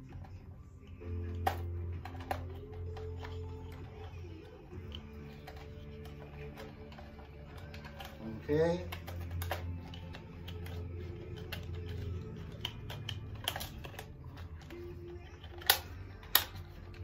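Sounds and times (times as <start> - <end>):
soft background music: 0.0 - 17.0
plastic clicks and taps: 8.8 - 17.0.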